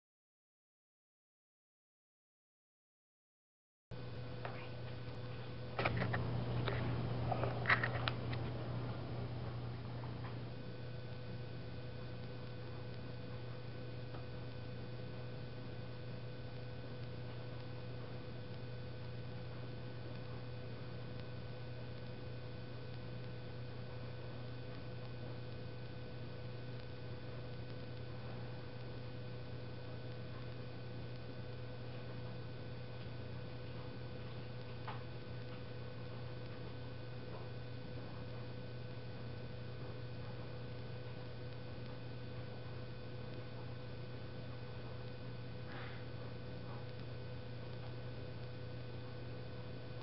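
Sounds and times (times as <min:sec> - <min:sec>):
low electrical hum: 0:03.9 - 0:50.0.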